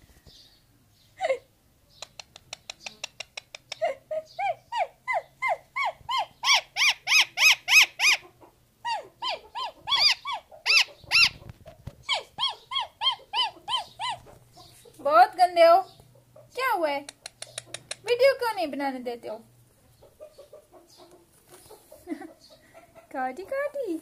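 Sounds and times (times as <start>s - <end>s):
parakeet screeching: 6.3s - 8.2s, 9.3s - 11.4s.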